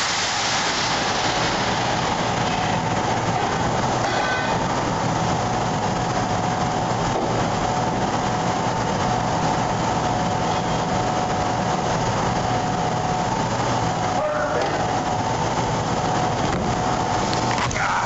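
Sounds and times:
sandblaster hissing: 0:00.0 - 0:02.8
steady whine: 0:00.0 - 0:18.0.

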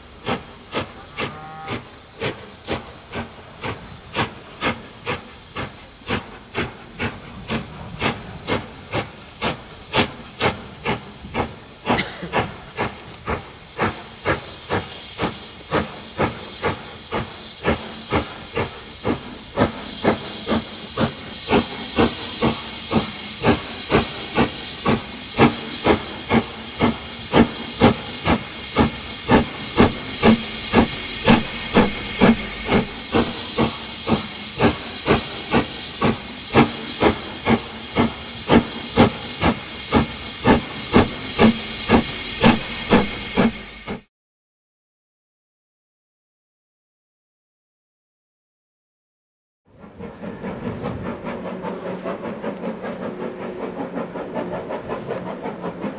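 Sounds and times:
continuous steam hiss: 0:00.0 - 0:44.1, 0:49.8 - 0:55.9
steam locomotive chuffing: 0:00.0 - 0:44.1, 0:49.7 - 0:55.9.

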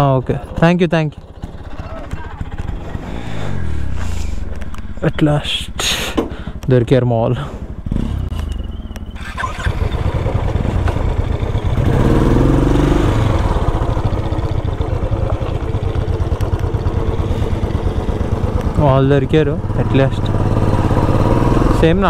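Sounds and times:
motorcycle engine running: 0:00.0 - 0:22.0
rushing wind noise: 0:02.8 - 0:05.9.

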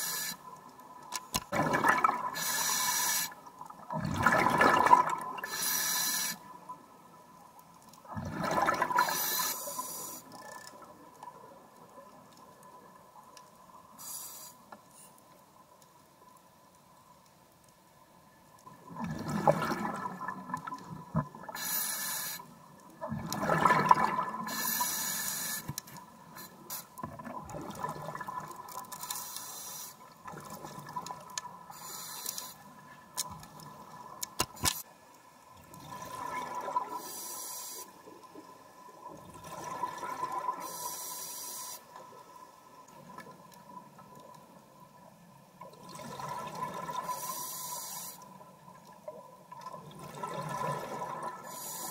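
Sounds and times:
exhaled bubbles bursting: 0:01.5 - 0:02.4, 0:03.9 - 0:05.4, 0:08.1 - 0:09.1, 0:18.9 - 0:21.5, 0:23.0 - 0:24.5, 0:27.1 - 0:28.7.

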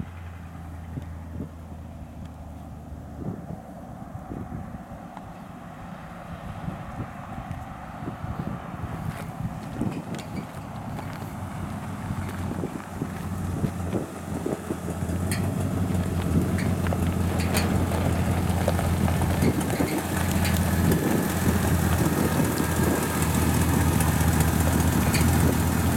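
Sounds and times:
pickup truck engine idling: 0:09.0 - 0:25.9
light ticks: 0:15.3 - 0:20.8.

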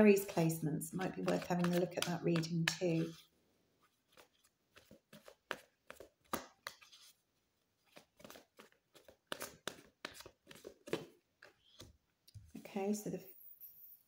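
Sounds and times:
cards being shuffled: 0:01.1 - 0:07.2, 0:07.8 - 0:12.0.

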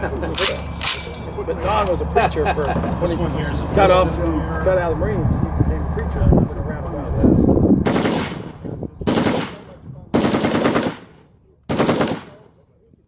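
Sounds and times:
gunfire echo: 0:07.9 - 0:12.4
machine gun bursts: 0:07.9 - 0:12.5.

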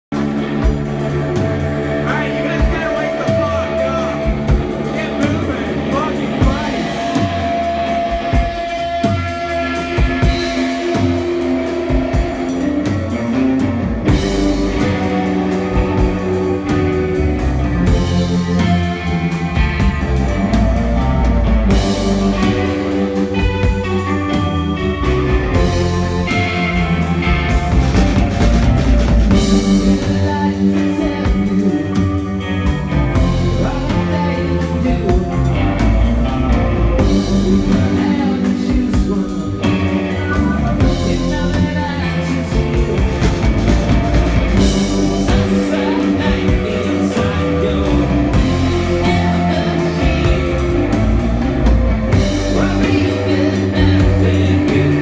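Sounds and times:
drum kit: 0:00.0 - 0:55.0
electric guitar: 0:00.0 - 0:55.0
man singing: 0:01.4 - 0:11.2, 0:29.3 - 0:55.0.

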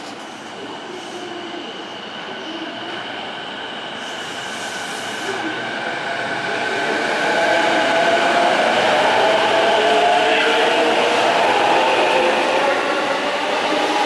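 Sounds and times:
electric train pulling away: 0:00.8 - 0:14.0.

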